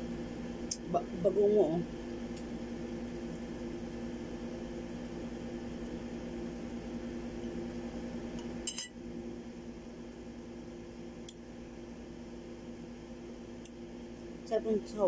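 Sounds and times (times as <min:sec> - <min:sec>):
steady background hum: 0:00.0 - 0:15.0
fork clinking on ceramic plate: 0:08.7 - 0:08.9.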